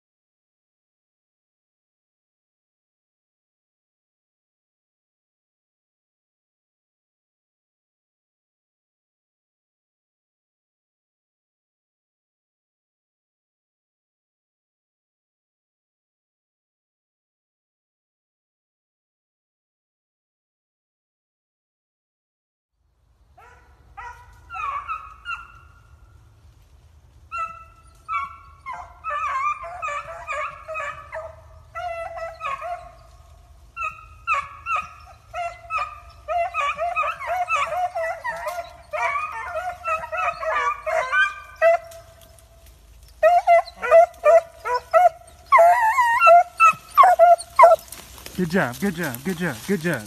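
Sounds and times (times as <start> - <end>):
dogs baying and howling: 23.4 - 26.0, 27.2 - 50.0.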